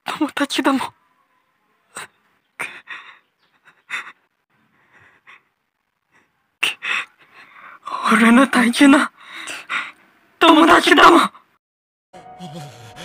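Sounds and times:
shaky gasping breaths: 0:02.0 - 0:07.9, 0:09.2 - 0:10.0.

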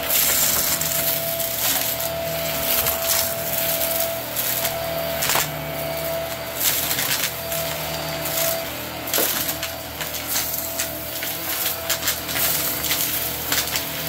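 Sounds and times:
vacuum cleaner motor humming: 0:00.0 - 0:14.0
debris crunching and rattling: 0:00.1 - 0:05.6, 0:08.4 - 0:13.9.

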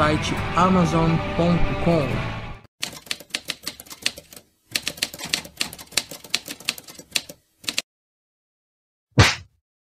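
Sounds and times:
typewriter keys clacking: 0:02.8 - 0:07.8.

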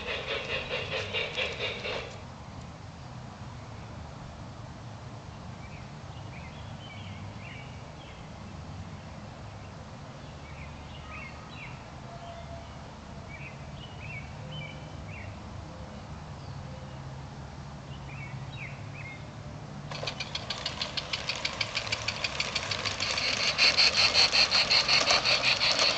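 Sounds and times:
model train clattering: 0:00.0 - 0:02.2, 0:19.9 - 0:25.9.

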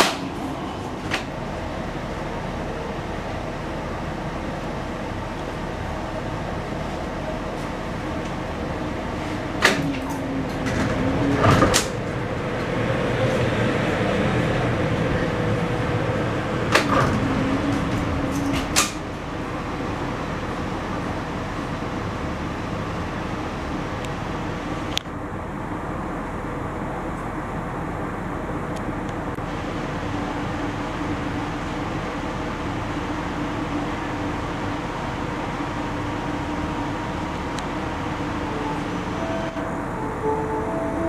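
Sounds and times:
train doors clunking: 0:00.0 - 0:01.5, 0:06.9 - 0:19.6, 0:37.4 - 0:41.0
steady train hum: 0:00.0 - 0:41.0.

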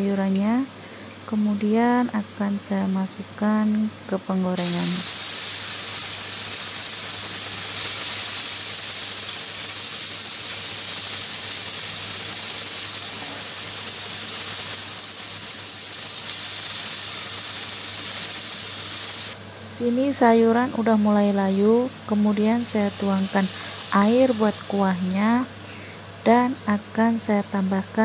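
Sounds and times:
vegetables sizzling in hot oil: 0:04.5 - 0:25.8.

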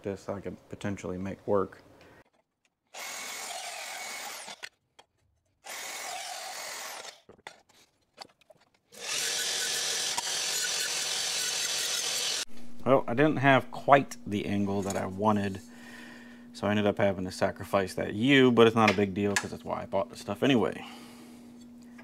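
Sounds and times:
bandsaw cutting metal tubing: 0:03.0 - 0:04.7, 0:05.6 - 0:07.3, 0:09.0 - 0:12.5
belt grinder running: 0:03.0 - 0:04.7, 0:05.6 - 0:07.2, 0:09.0 - 0:12.5.

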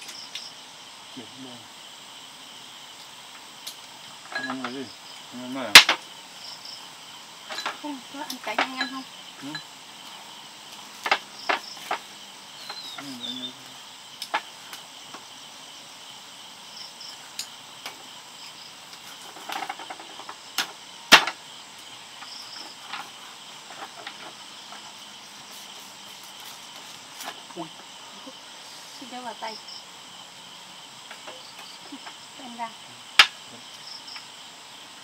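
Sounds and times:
insects chirring: 0:00.0 - 0:35.0.

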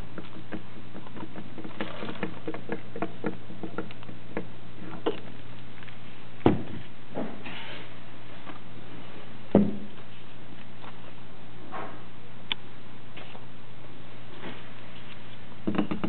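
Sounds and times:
axle knocking on table: 0:15.7 - 0:16.0.

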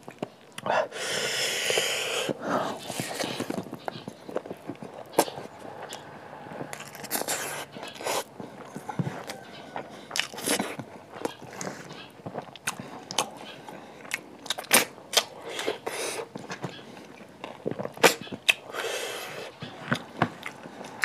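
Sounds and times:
breathy hisses: 0:00.7 - 0:03.2, 0:18.7 - 0:19.5
wet chewing and lip-smacking: 0:01.6 - 0:21.0.

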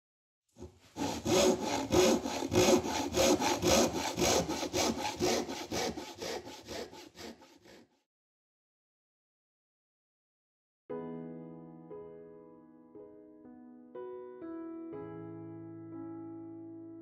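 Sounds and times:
hand saw cutting wood: 0:00.6 - 0:08.0.

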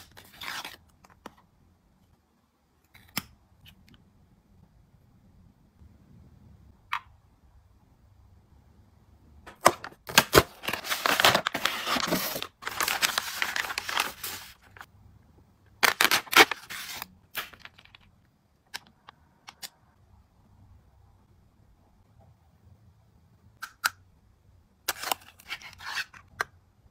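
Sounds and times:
plastic sachets crinkling: 0:10.1 - 0:14.9, 0:15.8 - 0:18.1.

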